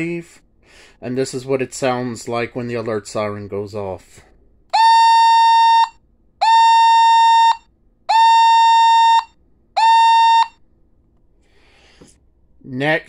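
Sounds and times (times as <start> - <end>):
pulsing buzzy alert siren: 4.8 - 10.6.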